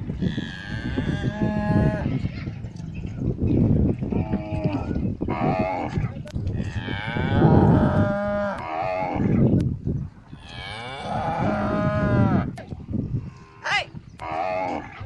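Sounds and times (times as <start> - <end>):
cattle mooing: 0.2 - 2.3, 4.1 - 9.5, 10.4 - 12.6, 13.2 - 15.0.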